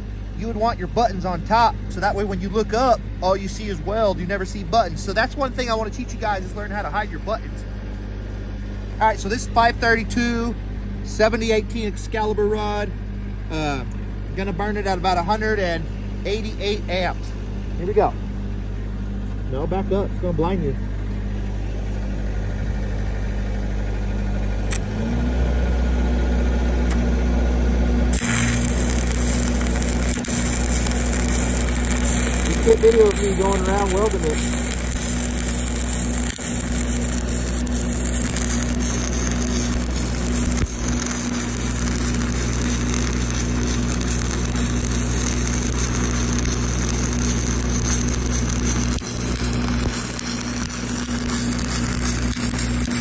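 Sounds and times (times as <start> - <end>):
steady low hum: 0.0 - 53.0
welding machine engine droning: 0.0 - 53.0
sharp click: 24.7 - 24.9.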